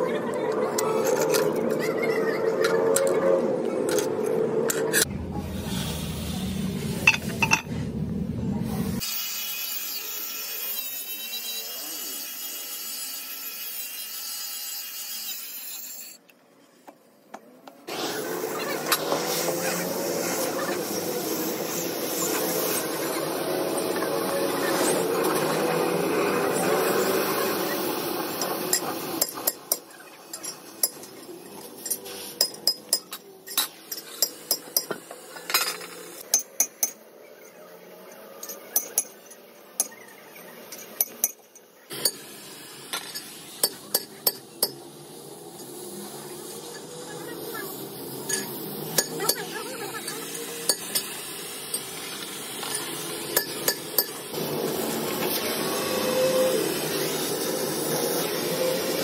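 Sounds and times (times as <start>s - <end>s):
cutting torch hissing: 5.4s - 7.1s, 17.9s - 29.3s, 41.9s - 44.0s, 49.8s - 59.0s.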